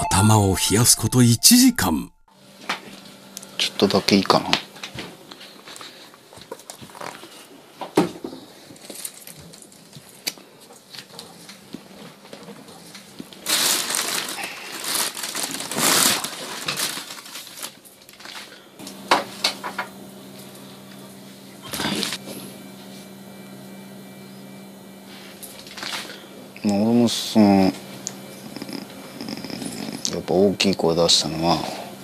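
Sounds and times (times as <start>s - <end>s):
plastic bag rustling: 8.7s - 10.0s, 13.1s - 18.6s
steady low hum: 18.6s - 32.0s.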